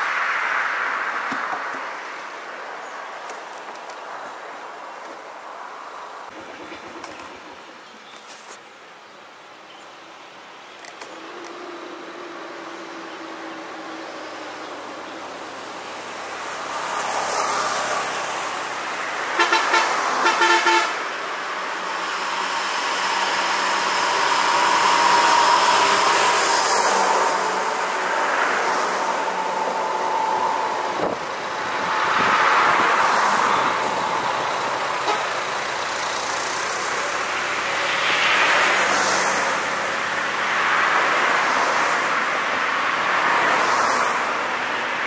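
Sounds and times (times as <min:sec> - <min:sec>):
road traffic passing: 0:00.0 - 0:45.0
vehicle horn short toots: 0:19.4 - 0:21.0, 0:35.0 - 0:35.3.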